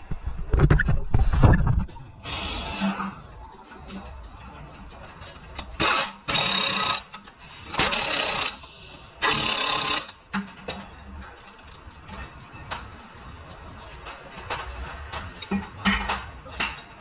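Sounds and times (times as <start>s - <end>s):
pneumatic impact wrench hammering: 5.8s - 10.2s.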